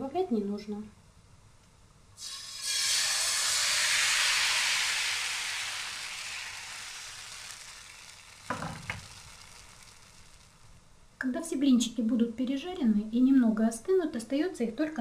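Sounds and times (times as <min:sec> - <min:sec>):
batter sizzling in hot pan: 0:02.2 - 0:10.8.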